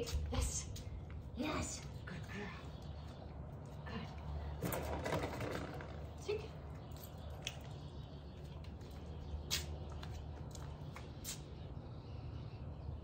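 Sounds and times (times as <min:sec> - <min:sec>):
dog clicks and scuffs: 0:06.9 - 0:11.6.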